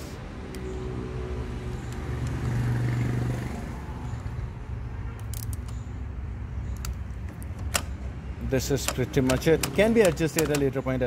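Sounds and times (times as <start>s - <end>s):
vehicle engine humming: 0.0s - 11.0s
socket wrench clicks: 6.7s - 8.0s, 8.8s - 11.0s.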